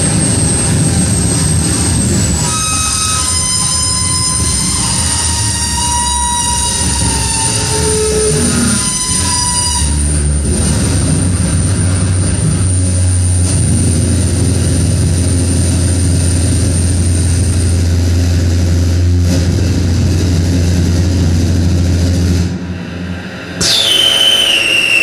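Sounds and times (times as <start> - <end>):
harsh electronic noise music: 0.0 - 17.2
low drone: 0.0 - 25.0
thin high whistle: 2.0 - 10.2, 23.5 - 25.0.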